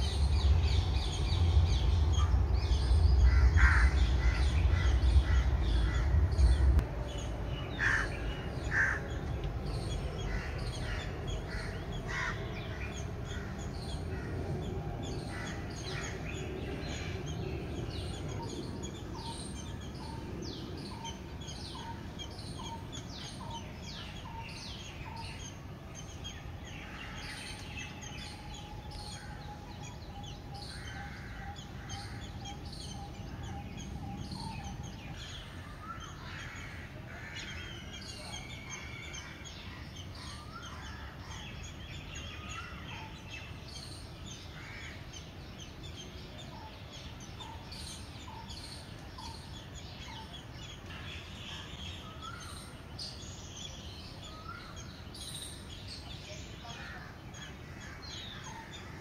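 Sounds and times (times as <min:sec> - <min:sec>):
low rumble: 0:00.0 - 0:21.5
birds chirping and cawing: 0:00.0 - 0:59.0.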